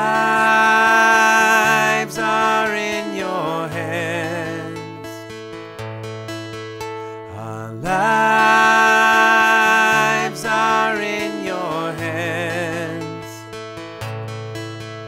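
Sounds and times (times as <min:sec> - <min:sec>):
person singing with vibrato: 0:00.0 - 0:05.4, 0:07.2 - 0:13.6
acoustic guitar strumming: 0:00.0 - 0:15.0.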